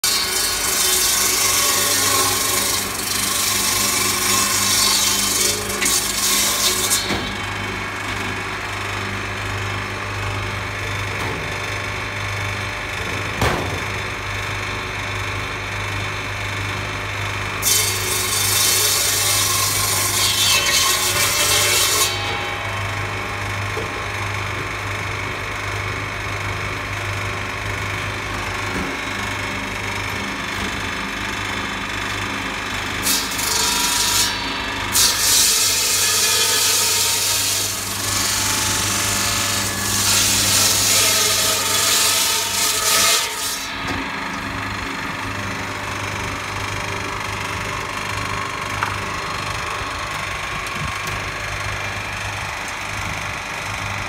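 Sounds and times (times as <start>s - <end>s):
saw blades cutting ice: 0.0s - 7.6s, 17.6s - 22.6s, 33.0s - 43.9s.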